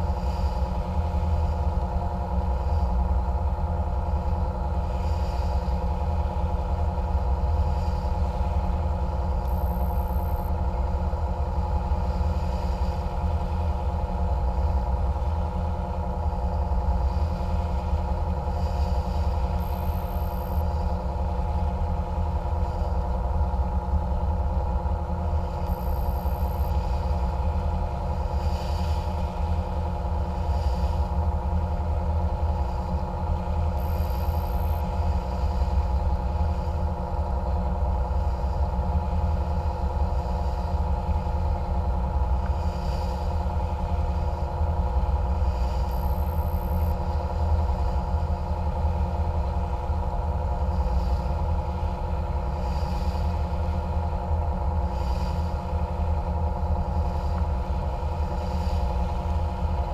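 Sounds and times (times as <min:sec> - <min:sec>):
boat engines droning: 0:00.1 - 0:59.9.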